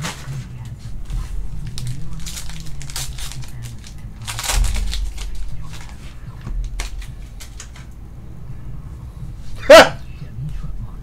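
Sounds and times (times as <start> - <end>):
wrappers crinkling and rustling: 0.0 - 7.9.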